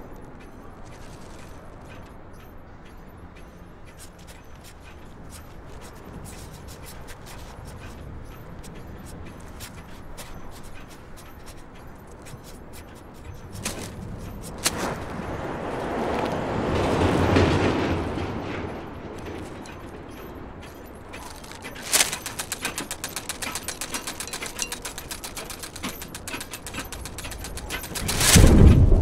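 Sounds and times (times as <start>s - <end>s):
rattling clicks: 16.2s - 29.0s
sharp crack: 21.2s - 29.0s.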